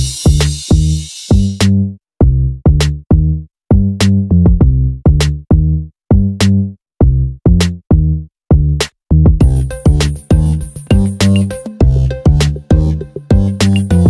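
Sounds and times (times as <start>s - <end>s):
electronic music with drum beat: 0.0s - 1.8s, 8.6s - 14.0s.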